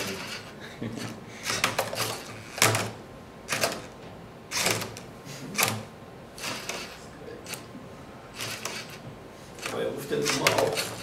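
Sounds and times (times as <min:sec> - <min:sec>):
robot mechanism noise: 0:04.5 - 0:05.0, 0:05.6 - 0:07.7, 0:08.4 - 0:09.0.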